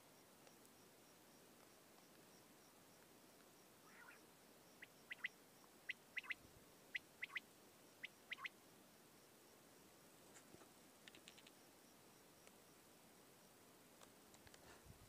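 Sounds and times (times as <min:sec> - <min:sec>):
quail calling: 0:03.8 - 0:04.2, 0:04.8 - 0:07.4, 0:08.0 - 0:08.6.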